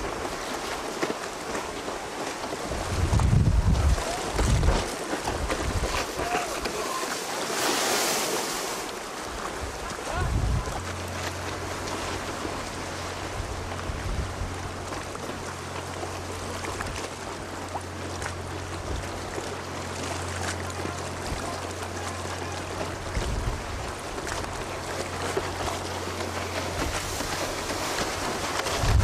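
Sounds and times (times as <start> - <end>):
small waves on shore: 0.0 - 29.0
wind buffeting microphone: 2.6 - 6.9, 9.2 - 11.1, 12.4 - 15.1, 22.7 - 24.9, 25.5 - 29.0.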